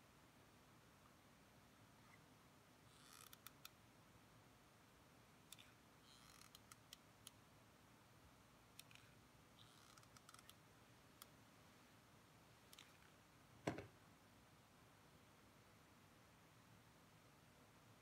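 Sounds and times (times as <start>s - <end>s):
knock on table: 13.6s - 13.9s.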